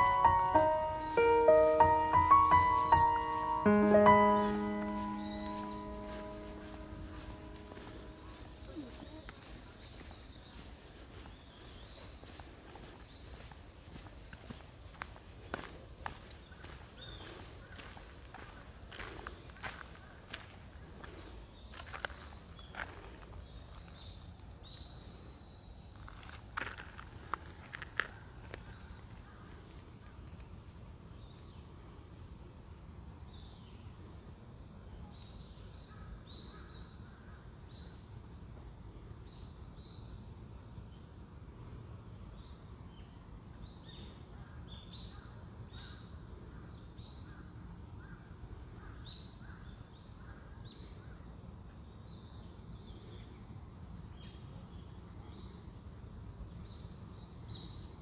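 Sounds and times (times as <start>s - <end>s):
insects trilling: 0.0s - 20.6s.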